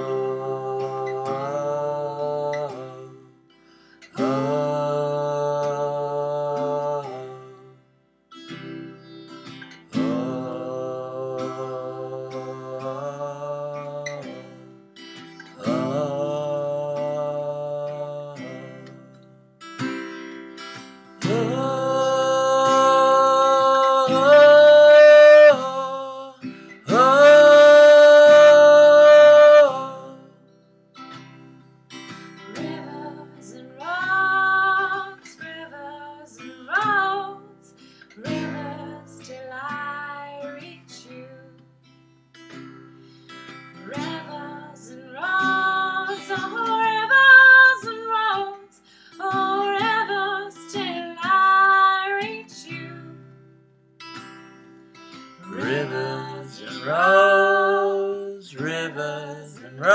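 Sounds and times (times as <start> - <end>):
person singing wordless notes: 0.0 - 3.3, 4.1 - 7.8, 9.9 - 14.6, 15.3 - 19.1, 21.2 - 30.3, 43.8 - 53.2, 55.4 - 59.9
acoustic guitar: 0.0 - 59.9.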